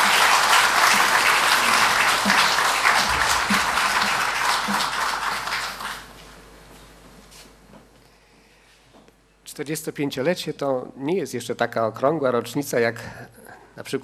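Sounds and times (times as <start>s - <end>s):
audience applauding: 0.0s - 6.2s.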